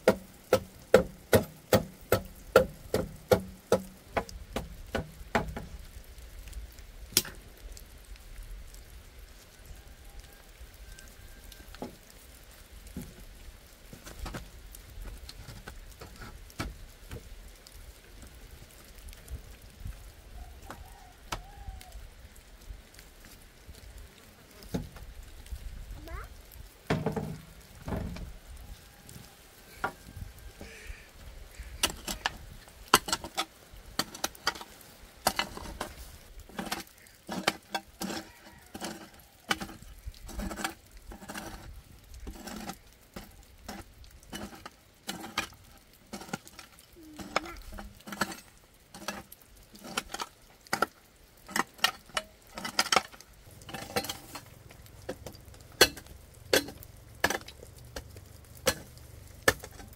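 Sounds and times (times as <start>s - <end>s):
hard objects clicking and knocking: 26.9s - 28.3s, 31.8s - 41.6s, 49.0s - 59.9s.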